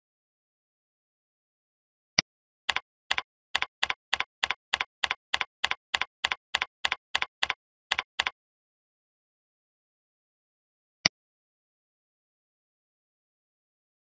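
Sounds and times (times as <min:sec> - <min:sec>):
keyboard typing: 0:02.7 - 0:08.4.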